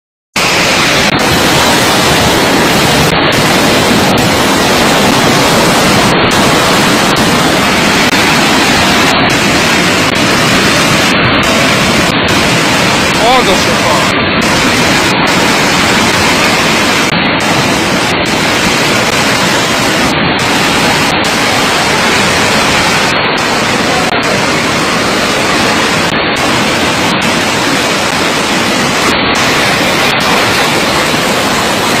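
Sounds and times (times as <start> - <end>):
rushing flood water: 0.4 - 32.0.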